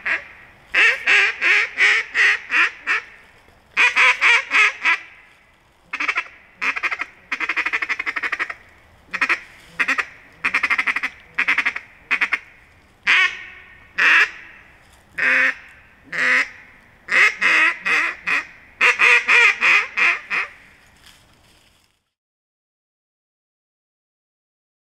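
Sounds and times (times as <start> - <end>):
duck call quacking: 0.0 - 3.2, 3.8 - 5.2, 5.9 - 14.6, 15.2 - 20.7.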